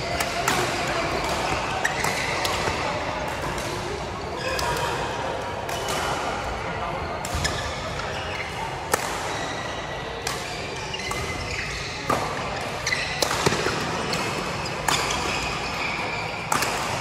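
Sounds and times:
badminton rackets hitting shuttlecock: 0.0s - 5.0s, 8.9s - 9.4s, 10.2s - 11.3s, 12.0s - 17.0s
background hubbub: 0.0s - 17.0s.

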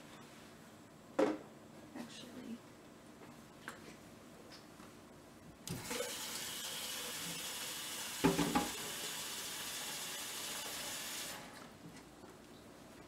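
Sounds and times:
tap water filling plastic reservoir: 5.7s - 11.4s.

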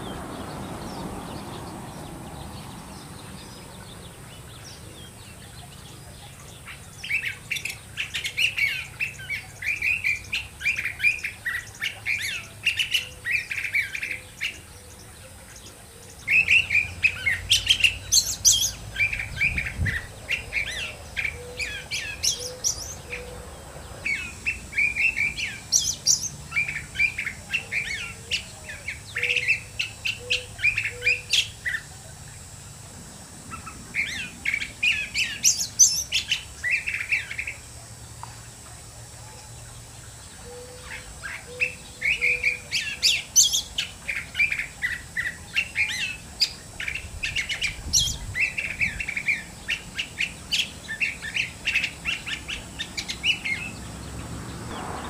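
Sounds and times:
bird singing warbled notes: 0.0s - 32.4s.

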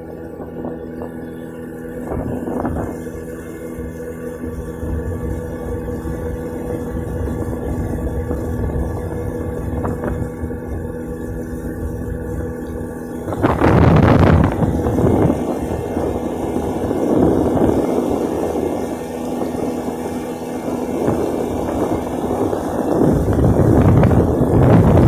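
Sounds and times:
motorboat engine running: 0.0s - 25.0s
wind noise on microphone: 1.9s - 25.0s.

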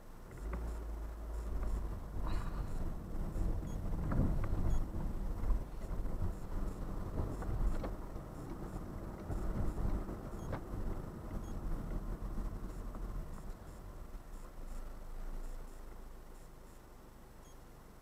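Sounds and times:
engine and tyres rumbling: 0.0s - 18.0s
faint clicks and knocks: 7.1s - 12.0s.

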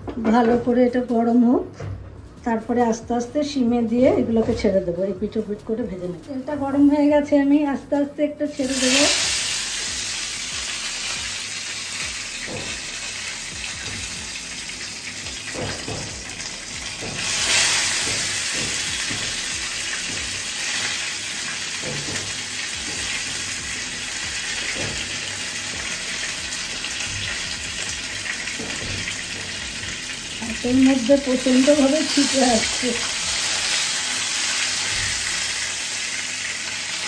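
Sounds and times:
hot oil sizzling and spattering: 8.6s - 37.0s.

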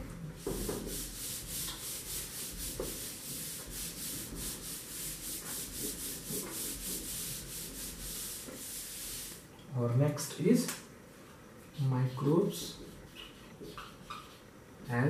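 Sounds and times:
whiteboard being wiped: 0.4s - 9.4s.

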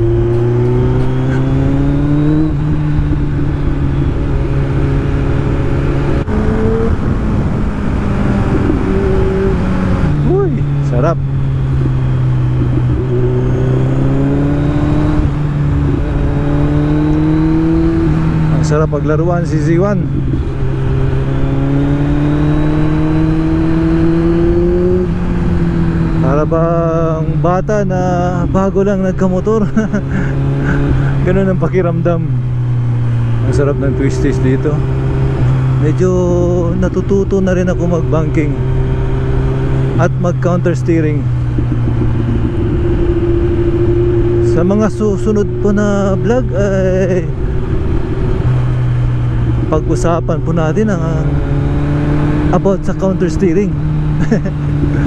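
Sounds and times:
wind rushing: 0.0s - 18.6s, 41.2s - 44.5s
motorcycle engine accelerating: 0.0s - 55.0s.

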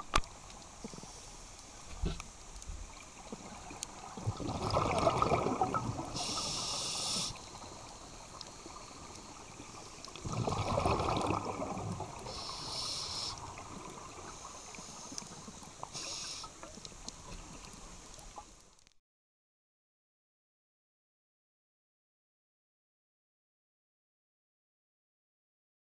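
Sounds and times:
regulator inhale hiss: 0.8s - 2.3s, 6.0s - 10.2s, 12.1s - 17.5s
exhaled bubbles underwater: 3.2s - 14.4s.

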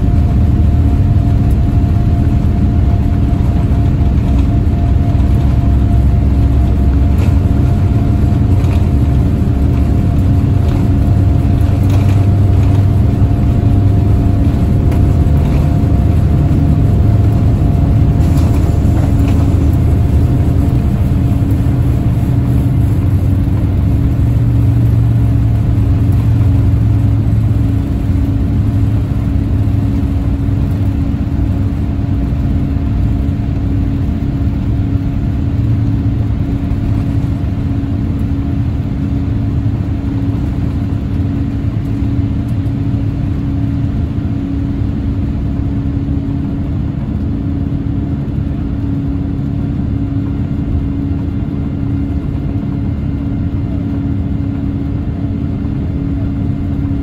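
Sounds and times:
jet engines roaring in cabin: 0.0s - 57.0s.

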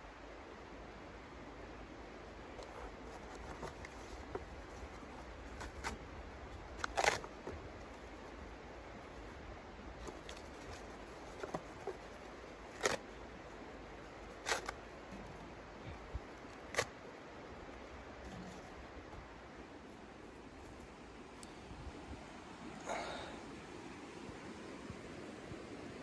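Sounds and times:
steady low outdoor hiss: 0.0s - 26.0s
sticks snapping: 14.4s - 14.8s.

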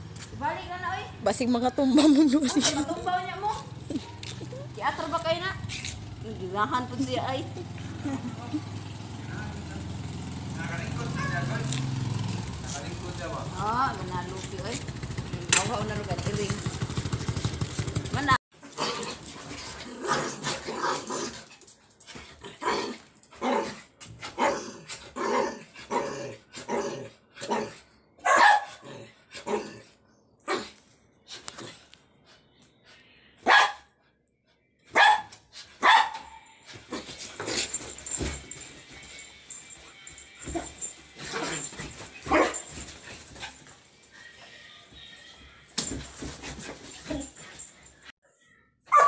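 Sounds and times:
dogs barking: 28.2s - 28.9s, 33.4s - 34.0s, 34.9s - 36.5s, 40.5s - 43.6s.

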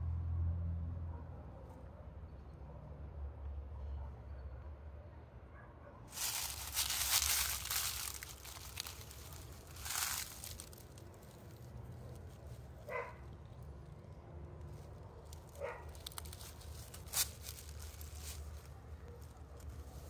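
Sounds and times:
dry leaves crunching underfoot: 6.1s - 13.1s, 14.7s - 20.0s.

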